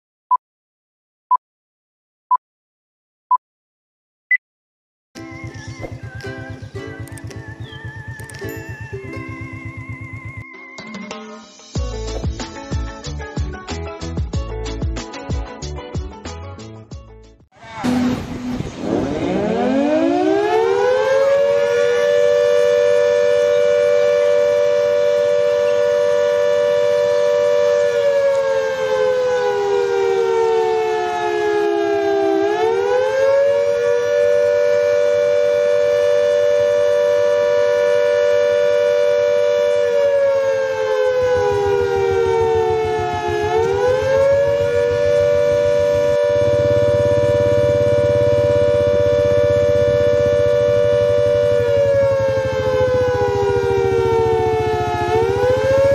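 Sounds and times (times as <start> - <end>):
two-tone warning siren wailing: 5.2 - 11.1, 17.6 - 55.9.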